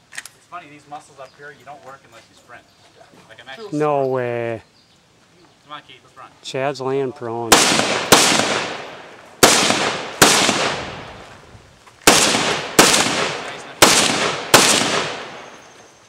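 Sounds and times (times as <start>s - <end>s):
rifle shots with echo: 7.5s - 11.3s, 12.0s - 15.8s.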